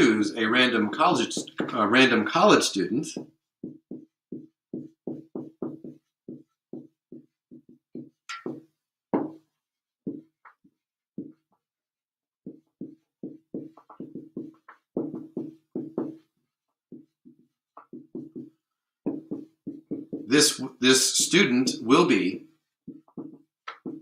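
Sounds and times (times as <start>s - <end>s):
marker squeaking on whiteboard: 4.8s - 8.6s, 12.5s - 22.3s, 22.9s - 24.0s.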